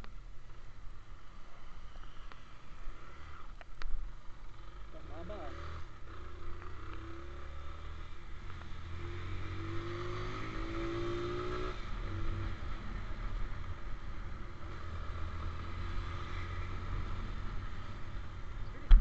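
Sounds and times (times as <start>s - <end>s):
road rumble: 0.0s - 19.0s
wind: 0.0s - 19.0s.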